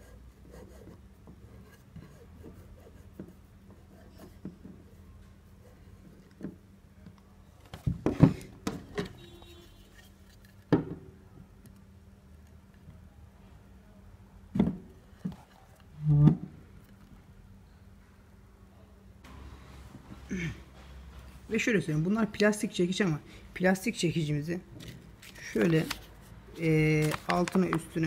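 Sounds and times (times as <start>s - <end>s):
wooden chair parts knocking: 7.8s - 9.3s, 10.7s - 11.1s.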